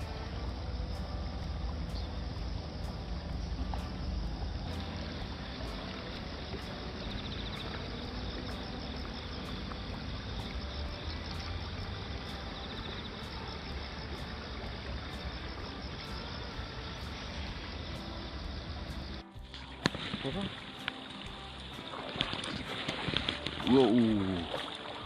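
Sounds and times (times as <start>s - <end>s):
river rushing over stones: 19.5s - 25.0s.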